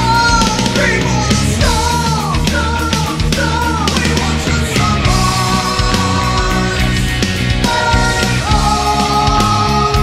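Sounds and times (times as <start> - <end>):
heavy metal band: 0.0 - 10.0.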